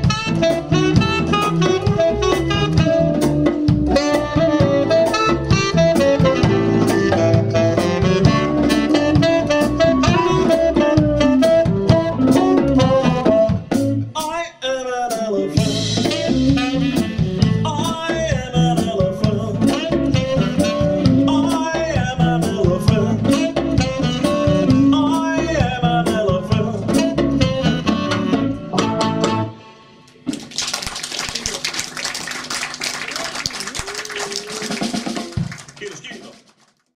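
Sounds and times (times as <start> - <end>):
saxophone: 0.0 - 14.1, 15.6 - 17.9, 19.6 - 21.9, 22.9 - 25.8, 26.8 - 30.2, 31.4 - 35.3
electric guitar: 0.0 - 14.2
drum kit: 0.0 - 14.4, 15.1 - 29.5, 30.1 - 36.5
bass: 0.0 - 36.2.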